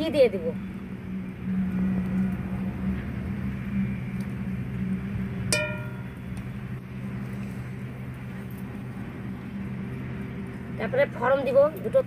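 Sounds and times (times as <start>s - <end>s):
steady low hum: 0.0s - 12.0s
metal spoon striking wok: 5.5s - 6.1s.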